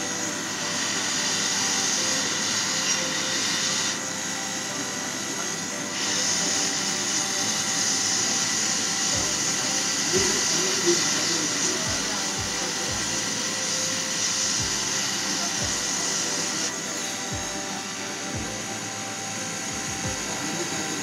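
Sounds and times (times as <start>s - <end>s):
hot air gun hiss: 0.0s - 21.0s.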